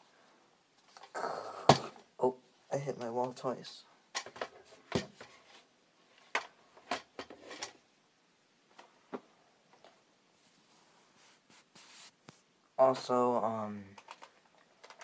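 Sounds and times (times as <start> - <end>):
clothing rubbing: 10.4 - 12.5.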